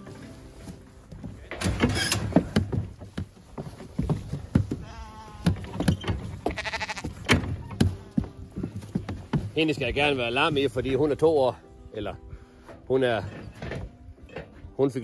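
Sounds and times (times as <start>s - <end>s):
sheep bleating: 4.8s - 5.6s, 6.4s - 7.2s.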